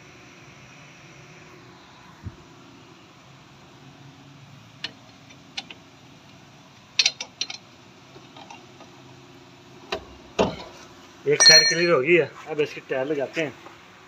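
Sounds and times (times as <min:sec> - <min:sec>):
steady low hum: 0:07.6 - 0:14.0
metal tools clinking on brake parts: 0:11.3 - 0:12.1.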